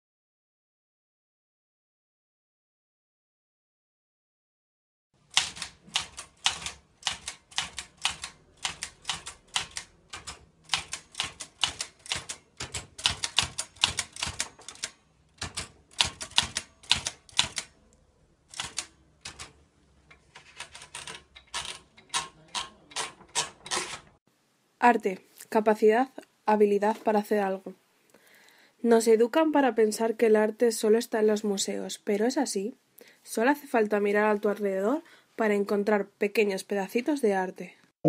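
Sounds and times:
typewriter key strikes: 5.4 - 17.7, 18.5 - 19.5, 20.6 - 24.1.

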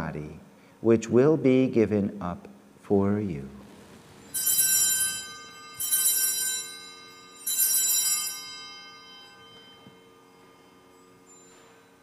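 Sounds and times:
small bells jangling: 4.2 - 12.0.

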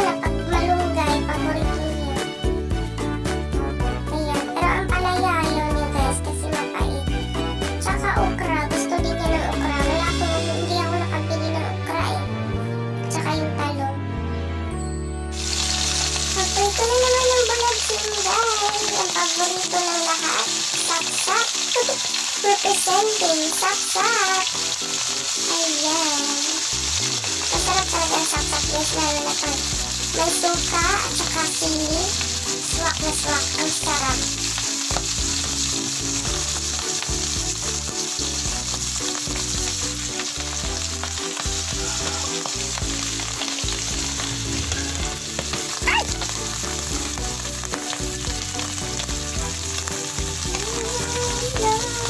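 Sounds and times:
fish frying in hot oil: 15.3 - 52.0.

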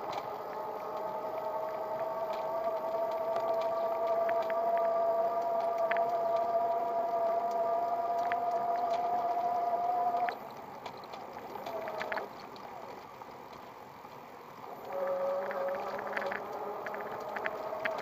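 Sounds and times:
electric bike motor whining: 0.0 - 10.6, 11.3 - 18.0
wheels knocking on path: 0.0 - 18.0.

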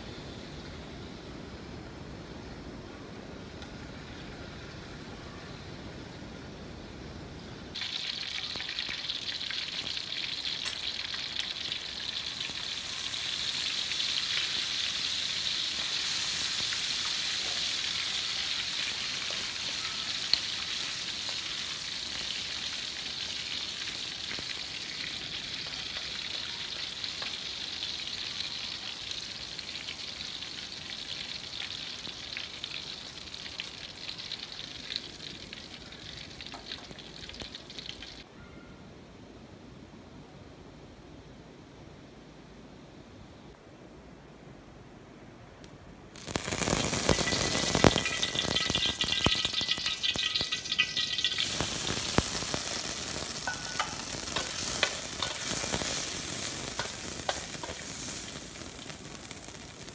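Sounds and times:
chillies sizzling in hot oil: 7.7 - 38.2, 46.2 - 59.9.

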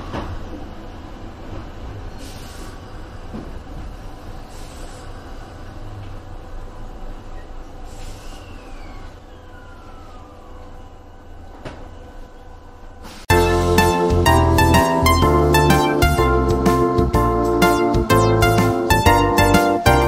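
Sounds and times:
short air hisses: 2.2 - 2.8, 7.9 - 8.5.

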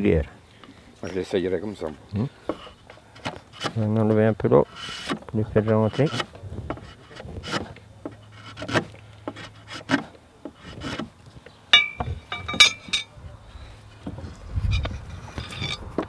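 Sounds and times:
drawknife scraping wood: 1.8 - 11.2, 14.0 - 16.0
sharp metallic clinks: 11.7 - 13.1.

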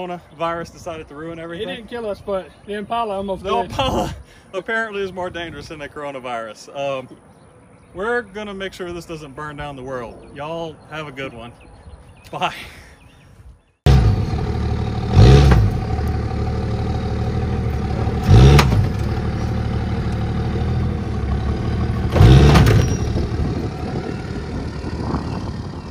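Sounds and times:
truck engine revving under load: 13.9 - 25.9.

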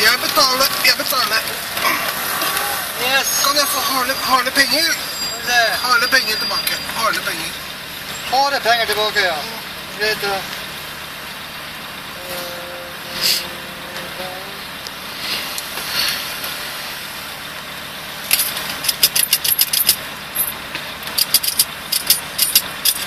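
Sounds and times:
car engine idling: 0.0 - 23.0
coins clinking: 18.3 - 23.0.

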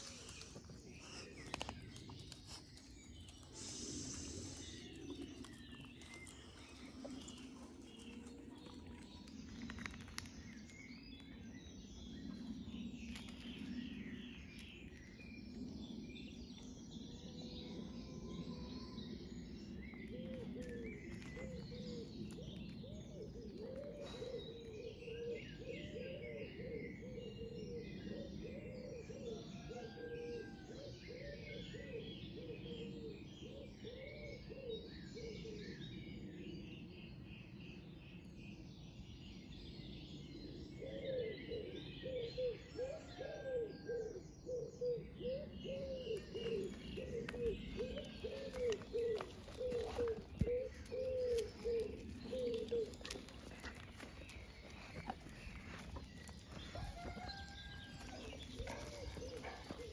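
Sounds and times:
small birds chirping: 0.0 - 17.8, 44.4 - 59.9
pigeon cooing: 40.9 - 59.9.

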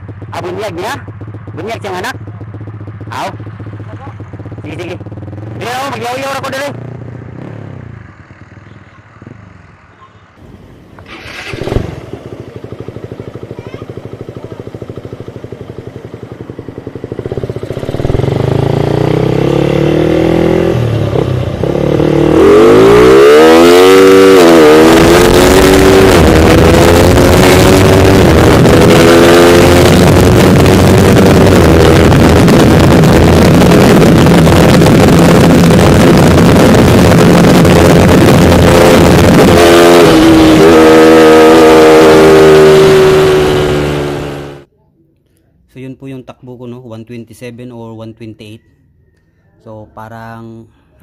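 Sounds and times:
motorcycle engine accelerating: 0.0 - 44.7
wind noise on microphone: 23.1 - 41.2.

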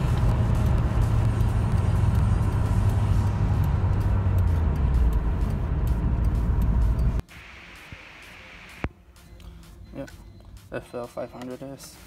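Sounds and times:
car cabin engine and road noise: 0.0 - 9.0.

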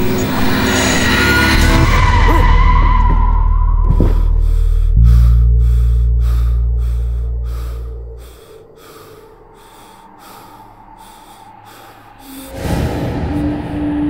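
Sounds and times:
deep horror boom: 0.5 - 10.8, 11.7 - 14.0
man panting heavily: 3.9 - 12.8.

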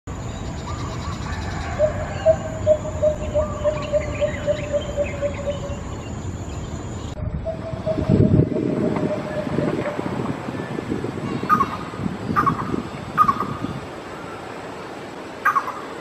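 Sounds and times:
small birds chirping: 0.1 - 14.5
low rumbling noise: 0.1 - 15.3
bird deep hollow hoots: 1.6 - 6.0, 7.4 - 10.0.

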